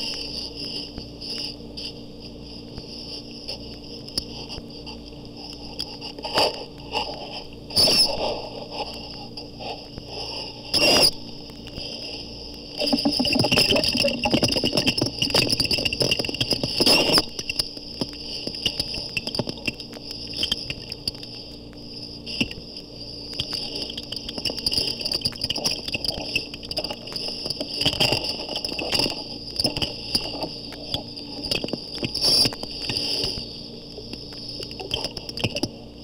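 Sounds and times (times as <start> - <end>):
scraping and rubbing underwater: 12.8 - 16.9
manatee high-pitched squeaks: 34.6 - 35.7.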